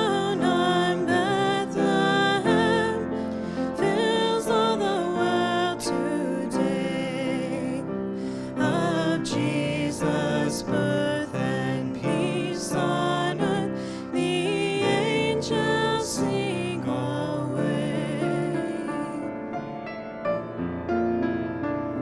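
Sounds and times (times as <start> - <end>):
man singing with vibrato: 0.0 - 3.1, 8.5 - 19.3
grand piano: 0.0 - 22.0.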